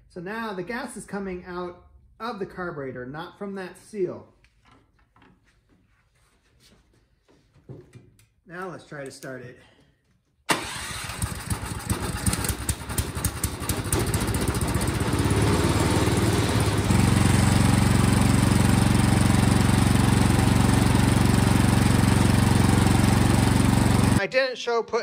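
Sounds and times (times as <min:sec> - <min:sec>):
snowblower engine running: 0:10.5 - 0:24.2.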